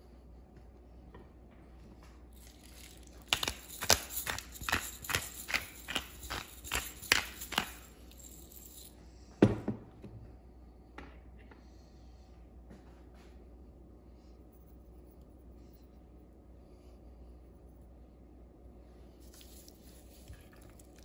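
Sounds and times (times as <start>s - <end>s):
pepper mill grinding: 2.4s - 8.9s, 19.2s - 21.0s.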